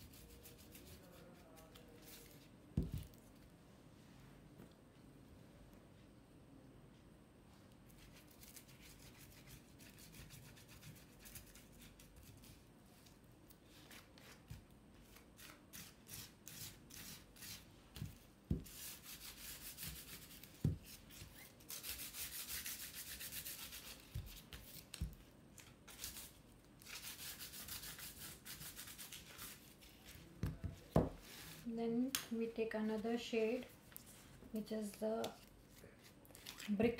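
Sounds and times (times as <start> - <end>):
rubbing strokes on paper: 0.0 - 2.5, 18.6 - 24.8.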